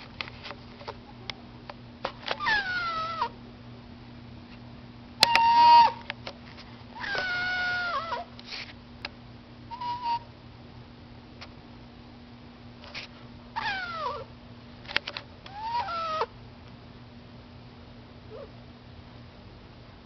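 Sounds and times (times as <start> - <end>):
cat meowing: 2.4 - 3.3, 5.3 - 6.0, 7.0 - 8.3, 13.6 - 14.3, 15.5 - 16.3.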